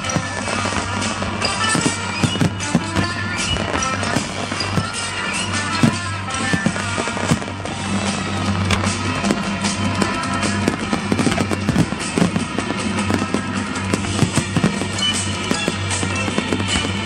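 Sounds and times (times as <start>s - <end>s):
fireworks bangs and crackles: 0.0s - 17.0s
music playing: 0.0s - 17.0s.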